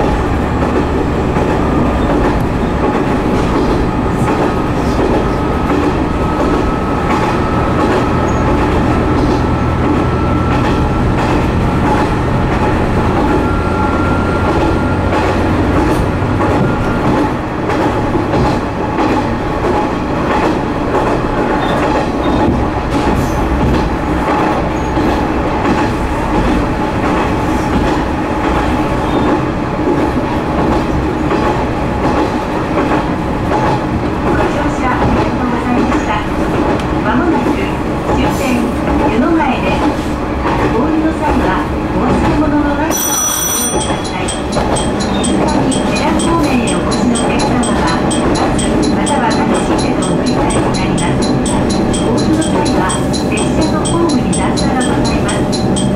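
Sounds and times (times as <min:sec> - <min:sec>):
rail-joint clicks: 0:00.0 - 0:40.8, 0:42.0 - 0:55.9
wheels on rails: 0:43.0 - 0:55.9.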